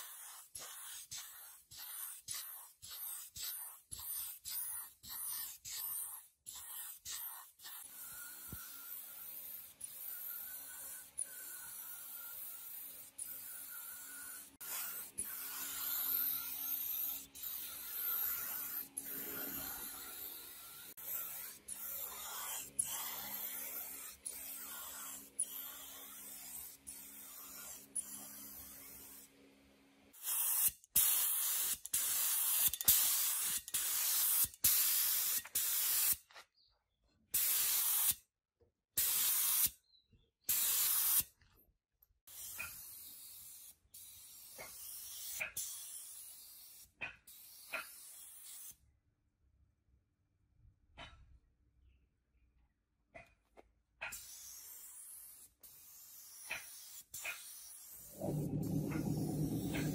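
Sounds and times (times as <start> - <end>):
paint spray gun hissing: 0.0 - 29.2, 30.2 - 36.2, 39.0 - 39.7, 40.5 - 41.3, 42.3 - 48.7, 54.2 - 58.8
faint low hum: 58.1 - 59.9.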